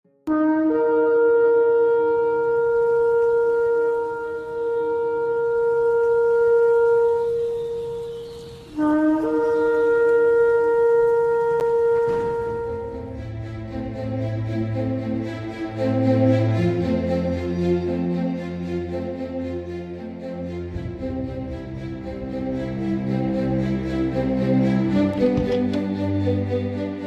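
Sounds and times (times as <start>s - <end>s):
shofar blasts: 0.3s - 14.0s.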